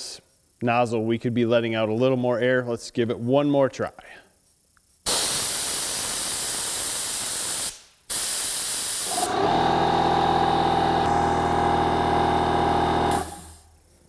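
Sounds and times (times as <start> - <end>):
compressed air hissing from nozzle: 5.1 - 9.4
air compressor whining: 9.0 - 13.8.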